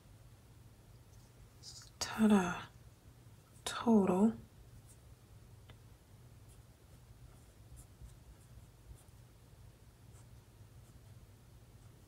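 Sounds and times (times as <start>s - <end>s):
pen scratching on paper: 6.5s - 9.2s.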